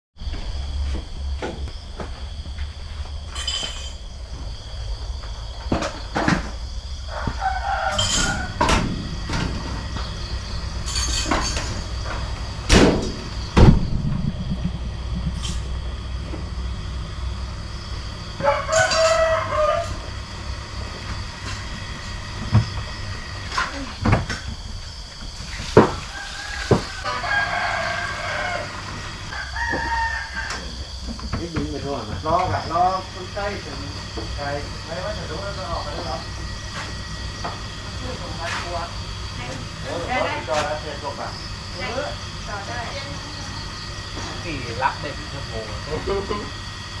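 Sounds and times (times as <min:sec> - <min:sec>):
night insects chirring: 0:00.2 - 0:47.0
rooster crowing: 0:06.8 - 0:10.6, 0:17.8 - 0:21.4, 0:25.8 - 0:31.1.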